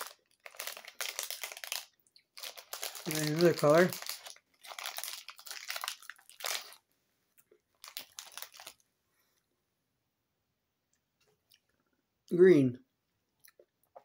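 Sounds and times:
foil snack pouch crinkling: 0:00.0 - 0:06.8, 0:07.7 - 0:08.8.

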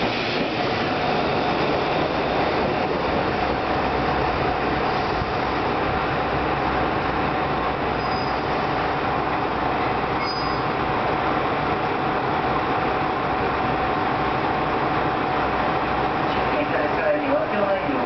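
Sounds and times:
diesel railcar engine rumbling: 0:00.0 - 0:18.0
brake squeals: 0:08.0 - 0:08.5, 0:10.2 - 0:10.7.

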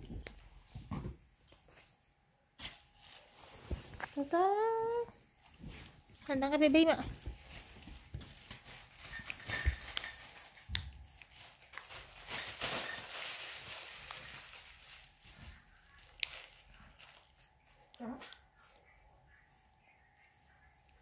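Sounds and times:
plastic packaging crinkling: 0:05.6 - 0:18.4.

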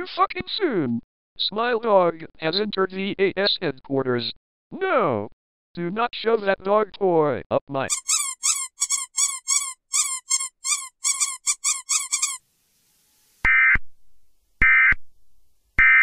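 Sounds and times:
squeaky rubber dog toy: 0:07.9 - 0:12.4.

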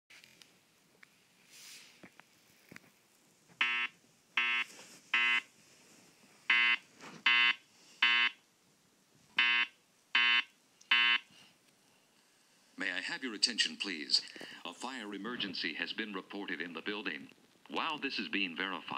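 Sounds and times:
fire alarm beeping: 0:03.6 - 0:05.5, 0:06.5 - 0:08.4, 0:09.4 - 0:11.2.

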